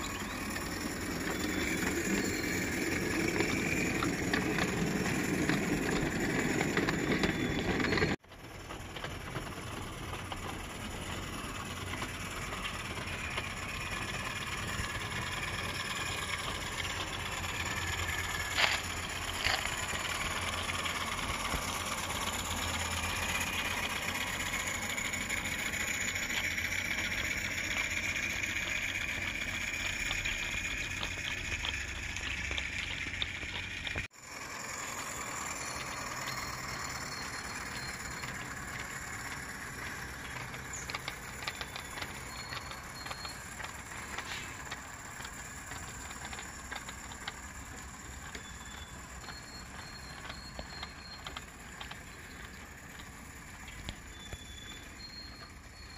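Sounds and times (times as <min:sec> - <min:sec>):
steam locomotive hissing: 0:00.0 - 0:31.9, 0:34.2 - 0:50.3
sharp clicks: 0:35.5 - 0:55.9.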